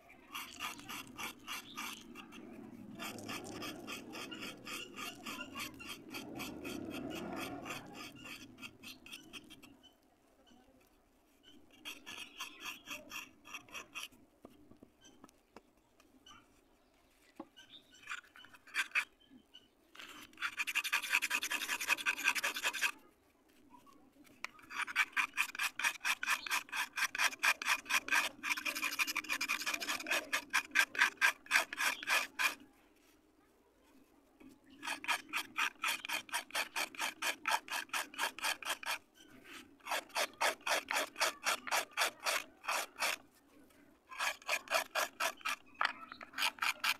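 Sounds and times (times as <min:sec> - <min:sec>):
knife scraping dried clay: 0:00.0 - 0:46.9.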